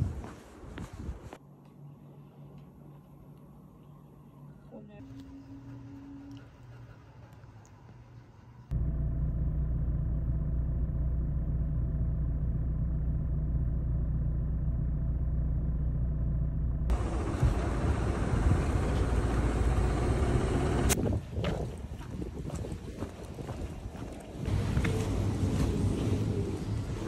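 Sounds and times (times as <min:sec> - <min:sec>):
road and wind noise: 0:00.0 - 0:01.4, 0:16.9 - 0:27.0
low engine rumble: 0:02.2 - 0:21.0.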